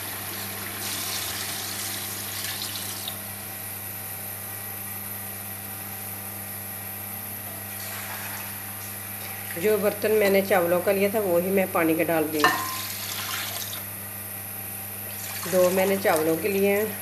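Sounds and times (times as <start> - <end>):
water pouring into pot: 12.6 - 13.8, 15.0 - 16.0.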